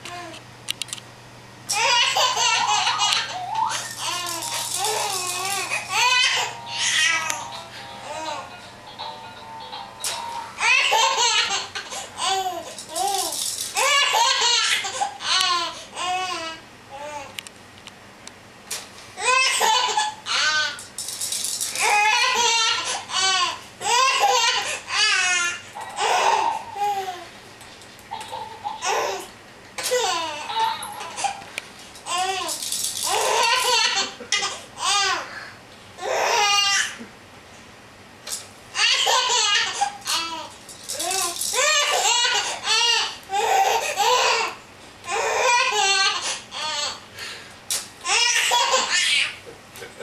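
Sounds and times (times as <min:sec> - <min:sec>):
baby laughing: 0:01.7 - 0:08.5, 0:10.6 - 0:17.1, 0:19.2 - 0:20.8, 0:21.7 - 0:27.3, 0:28.1 - 0:31.5, 0:32.1 - 0:35.4, 0:38.8 - 0:47.0, 0:48.0 - 0:49.4
baby giggling: 0:01.8 - 0:07.3, 0:10.6 - 0:15.7, 0:28.1 - 0:29.3, 0:29.9 - 0:31.4, 0:33.1 - 0:35.2, 0:48.1 - 0:49.2.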